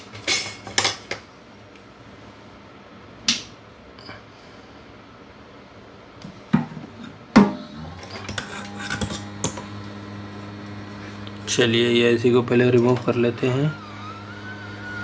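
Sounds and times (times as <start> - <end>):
hot-air blower humming: 6.3 - 15.0.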